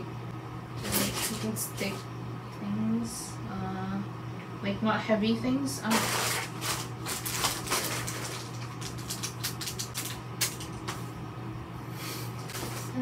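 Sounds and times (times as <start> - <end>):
steady low hum: 0.0 - 13.0
tape packaging crackling: 0.8 - 2.0, 5.9 - 11.1, 12.4 - 13.0.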